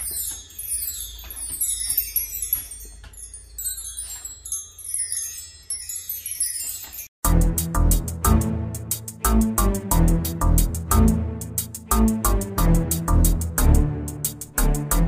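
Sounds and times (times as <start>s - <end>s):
metal bar chimes tinkling: 0.0s - 7.2s
music: 7.2s - 15.0s.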